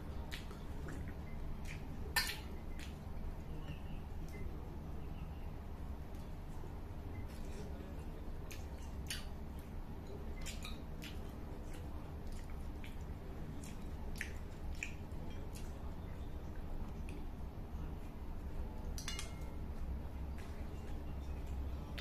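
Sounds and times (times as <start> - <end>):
wet mouth clicks and chewing: 8.4 - 17.4.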